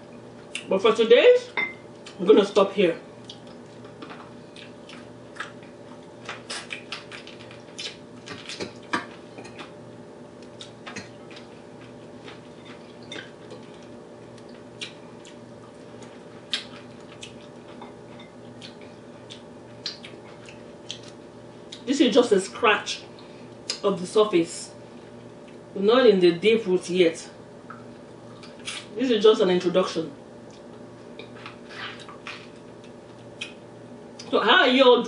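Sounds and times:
steady low hum: 0.0 - 35.0
wet chewing smacks: 6.3 - 8.8, 10.4 - 17.8.

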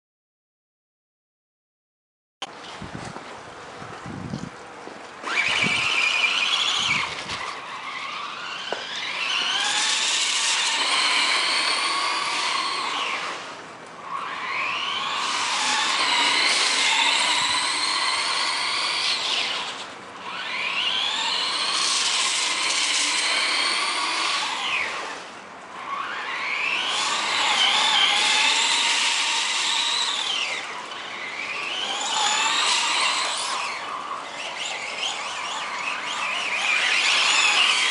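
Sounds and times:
toy car electric motor whining: 5.2 - 37.9.

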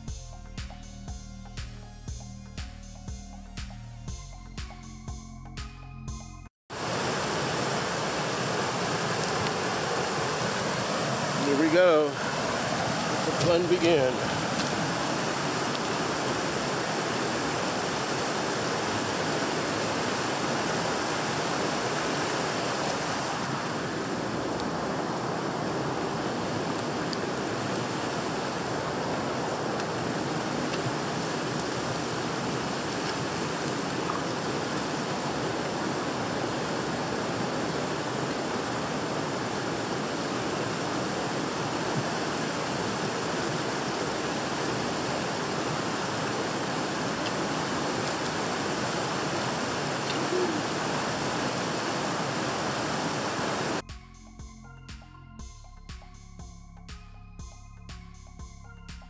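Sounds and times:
creek water rushing: 6.7 - 53.8.

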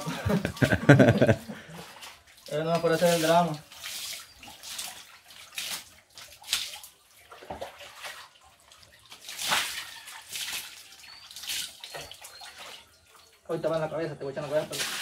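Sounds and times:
water splashing on concrete: 0.0 - 12.9, 14.4 - 15.0.

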